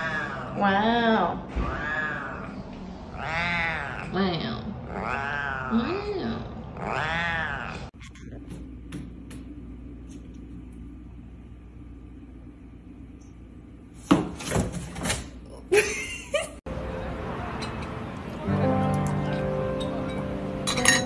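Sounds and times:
cat yowling: 0:00.0 - 0:00.6, 0:01.5 - 0:04.2, 0:04.9 - 0:06.1, 0:06.8 - 0:07.9
low steady hum: 0:00.0 - 0:14.0.

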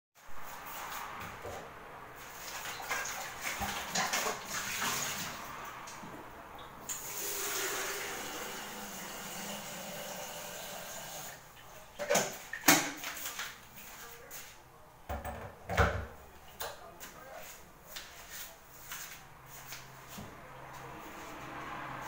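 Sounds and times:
knocks and clicks of cookware: 0:15.1 - 0:16.8.

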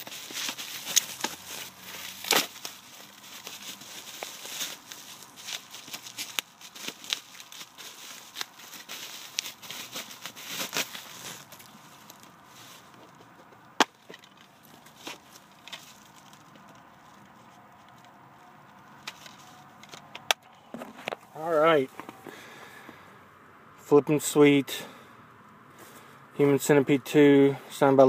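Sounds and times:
packing material rustling: 0:00.0 - 0:20.0.

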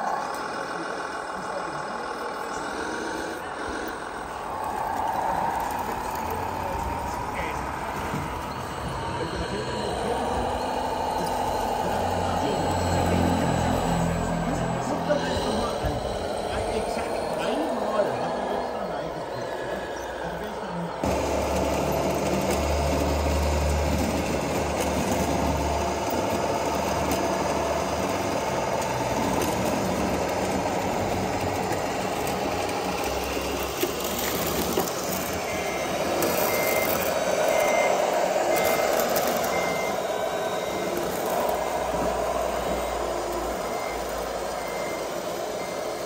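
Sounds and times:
reversing beeper beeps: 0:00.0 - 0:21.6, 0:23.3 - 0:46.0
model construction machines running: 0:00.0 - 0:46.0.

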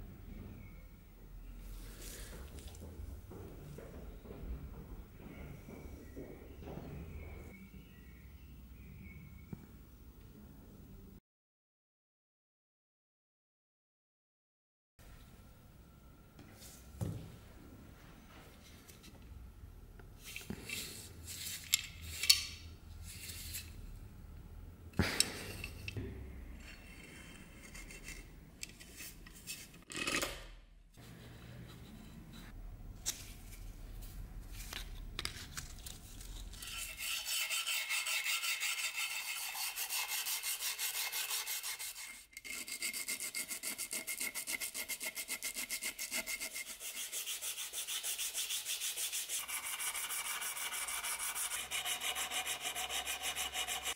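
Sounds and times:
sandpaper rubbing on metal: 0:36.6 - 0:53.9.

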